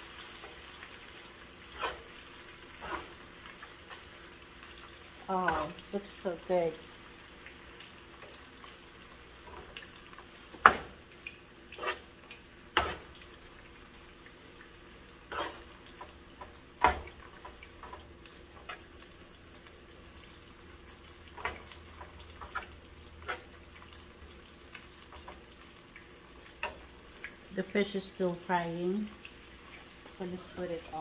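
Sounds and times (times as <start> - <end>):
faint frying sizzle: 0.0 - 31.0
spoon scraping a skillet: 1.7 - 3.2, 11.7 - 13.3, 15.2 - 19.1, 21.3 - 25.4.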